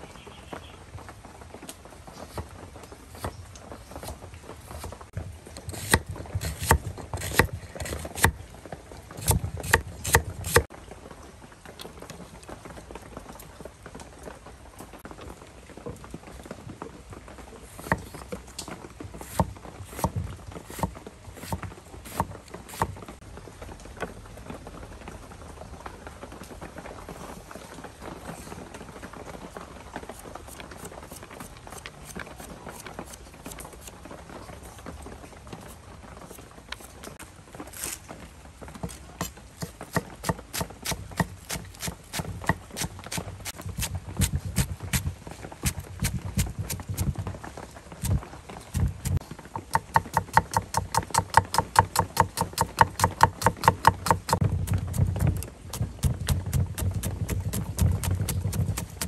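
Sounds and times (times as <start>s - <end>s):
cleaver chopping on wooden board: 5.7s - 8.4s, 9.2s - 10.7s, 19.3s - 22.9s, 38.9s - 45.1s, 45.7s - 47.1s, 49.8s - 59.0s
knife tapping on chopping board: 49.8s - 54.4s.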